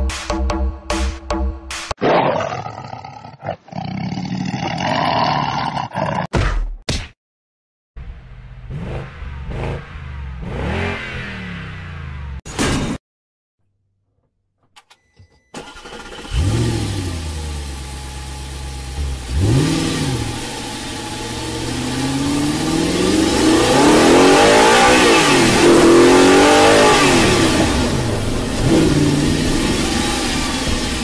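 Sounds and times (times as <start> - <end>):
car engine starting and revving: 8.0 - 12.4, 15.6 - 31.0.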